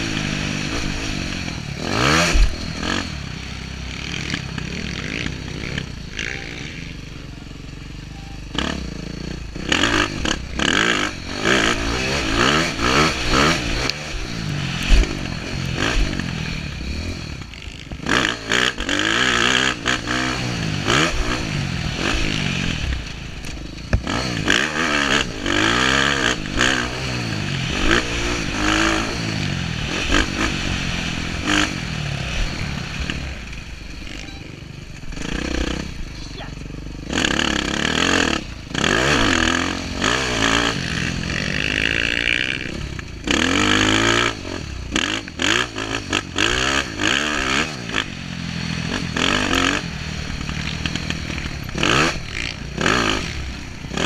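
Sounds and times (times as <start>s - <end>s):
dirt bike engine revving: 0.0s - 54.0s
knocks and clatter over rough ground: 9.2s - 19.2s, 22.0s - 27.0s, 37.1s - 54.0s.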